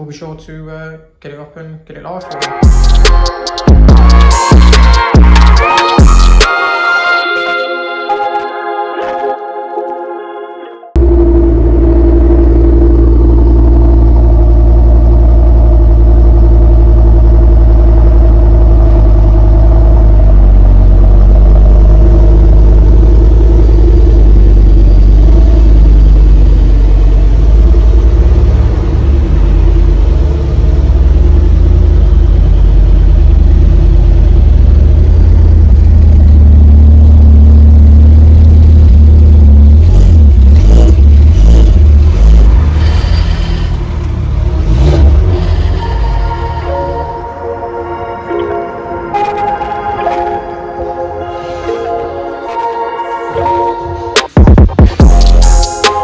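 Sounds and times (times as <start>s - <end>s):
car engines running loud and low: 11.0s - 47.4s.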